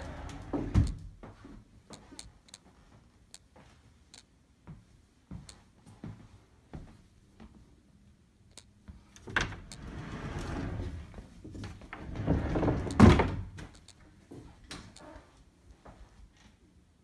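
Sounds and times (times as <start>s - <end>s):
closet door rolling and rustling: 0.0s - 1.0s, 9.2s - 13.6s
closet door banging shut: 12.2s - 13.6s.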